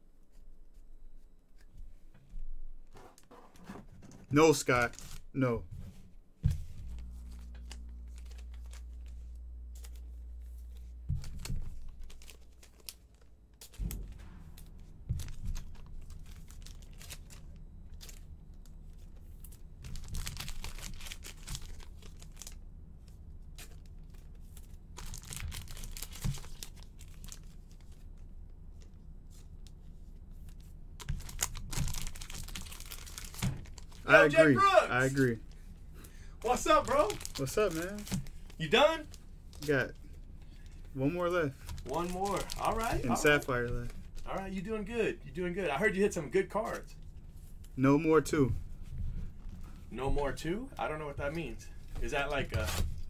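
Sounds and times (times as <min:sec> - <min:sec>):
low steady hum: 0:00.0 - 0:53.0
foil wrapper tearing and crinkling: 0:06.8 - 0:22.6, 0:23.5 - 0:28.0, 0:31.0 - 0:34.2, 0:36.5 - 0:39.8, 0:41.2 - 0:44.6.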